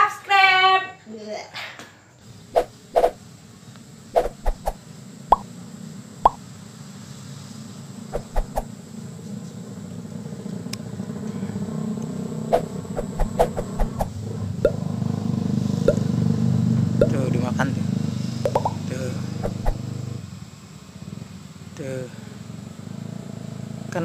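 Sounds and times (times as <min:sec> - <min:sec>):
distant motor vehicle hum: 0:02.3 - 0:24.0
short clicks and pops: 0:04.2 - 0:05.4, 0:18.5 - 0:18.8.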